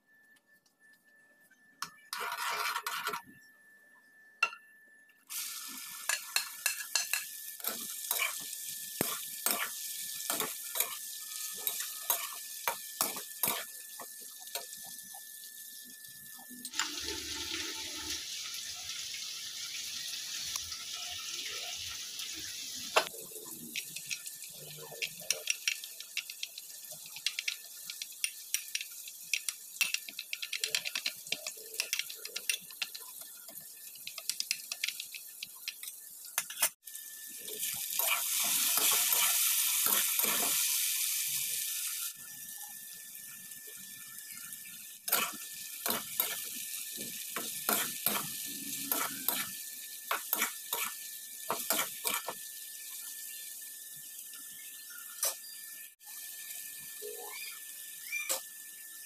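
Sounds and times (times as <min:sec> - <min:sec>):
spoon scraping glass bowl: 0:01.9 - 0:03.3
frying sizzle in a pan: 0:05.3 - 0:59.0
spatula stirring in a pan: 0:06.0 - 0:15.0, 0:37.5 - 0:40.7, 0:45.1 - 0:52.4.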